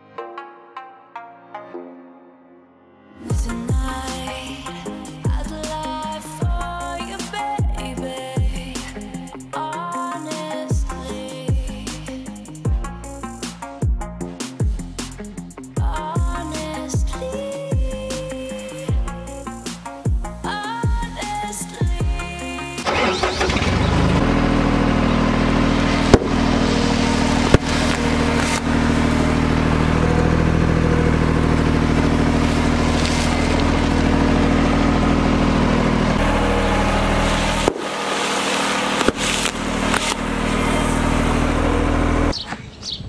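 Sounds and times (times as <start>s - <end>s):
road roller diesel engine: 22.8s - 42.4s
bags bursting with sharp cracks: 25.9s - 29.0s, 32.3s - 34.2s, 37.3s - 40.6s.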